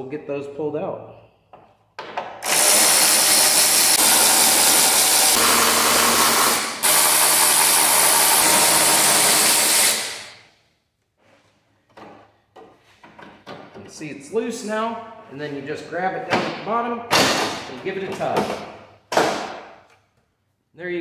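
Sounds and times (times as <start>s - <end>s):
electric ratchet spinning: 2.4s - 10.4s.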